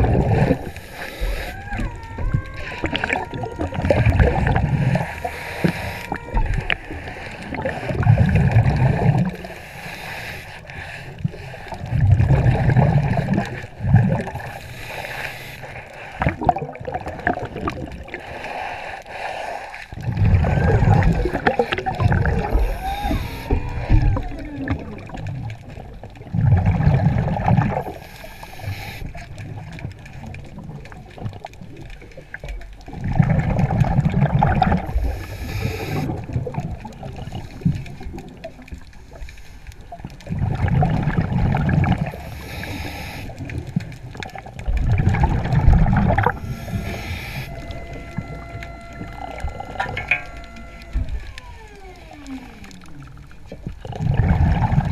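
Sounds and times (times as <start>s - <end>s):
exhaled bubbles rushing: 0.0s - 18.4s, 19.9s - 38.9s, 39.9s - 54.9s
regulator inhalation hiss: 0.4s - 1.8s, 4.7s - 8.3s, 9.4s - 11.8s, 14.3s - 16.2s, 18.2s - 20.0s, 21.0s - 24.3s, 27.9s - 29.2s, 34.8s - 36.2s, 42.1s - 43.4s, 46.2s - 52.9s.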